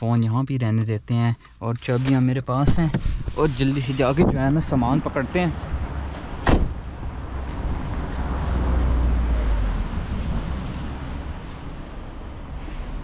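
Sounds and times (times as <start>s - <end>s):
vehicle passing: 5.0s - 13.0s.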